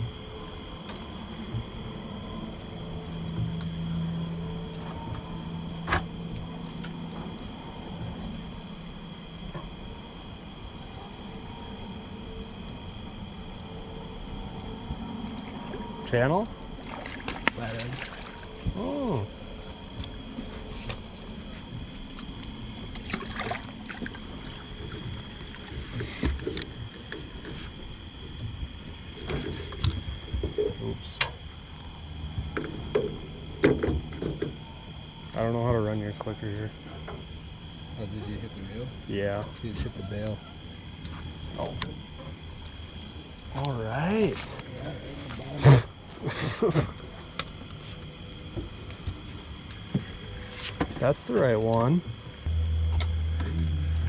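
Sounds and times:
water and wind rumble: 0.0s - 36.0s
insects chirping: 0.0s - 54.0s
steady low hum: 0.0s - 54.0s.

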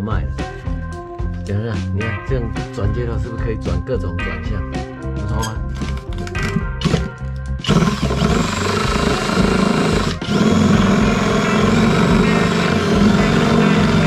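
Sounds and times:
drill powered saw cutting panel: 7.6s - 14.0s.

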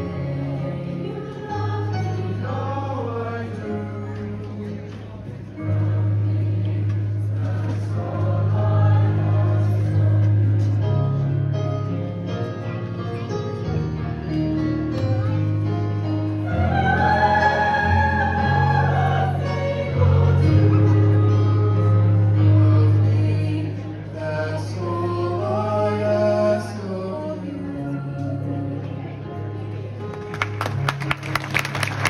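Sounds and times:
youth choir singing: 0.0s - 4.8s, 5.5s - 11.0s, 16.3s - 28.4s
vocal duet singing: 16.4s - 28.9s.

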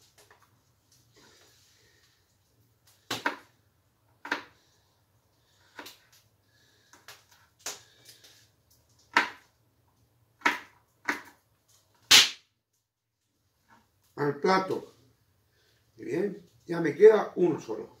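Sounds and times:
knocks and taps peeling garlic: 4.2s - 4.6s, 10.4s - 11.4s.

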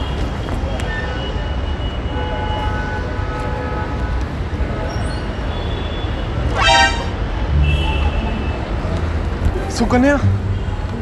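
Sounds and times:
road traffic rumble: 0.0s - 11.0s
vehicle horn toot: 5.7s - 8.7s.

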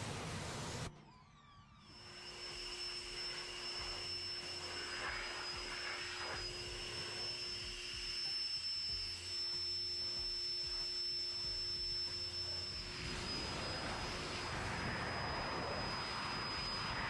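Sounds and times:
electric blower whining: 0.0s - 17.0s
rushing air: 13.0s - 17.0s.

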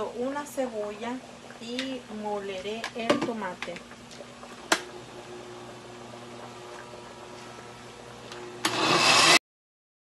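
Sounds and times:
faint steady hum: 0.0s - 9.0s
blender motor grinding: 8.3s - 9.4s.

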